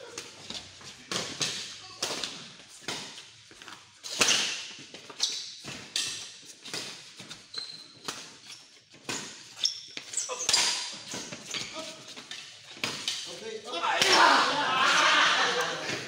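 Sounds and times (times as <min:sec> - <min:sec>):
shoe squeaks: 0:04.0 - 0:12.8
rackets hitting shuttlecock: 0:12.8 - 0:13.3, 0:14.0 - 0:15.8.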